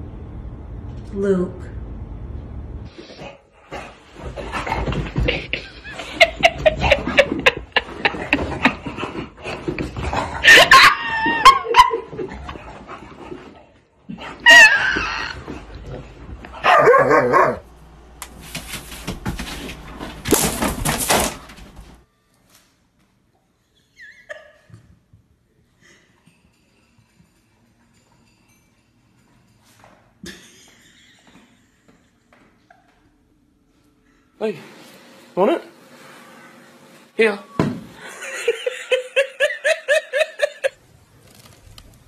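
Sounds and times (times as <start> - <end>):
dog barking and yelping: 10.4 - 12.2, 14.4 - 15.4, 16.6 - 17.7.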